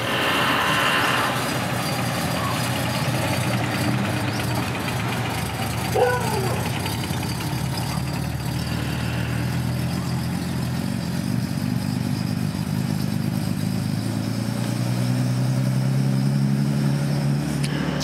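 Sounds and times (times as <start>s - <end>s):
car engine running and revving: 0.0s - 18.0s.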